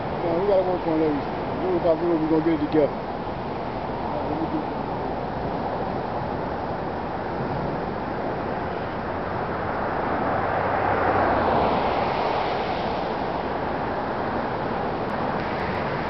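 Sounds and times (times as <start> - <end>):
road traffic noise: 0.0 - 16.0
car passing by: 7.5 - 16.0.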